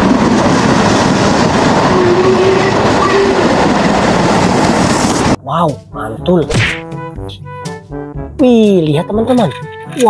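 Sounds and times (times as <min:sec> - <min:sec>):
steam locomotive exhaust rush: 0:00.0 - 0:05.4.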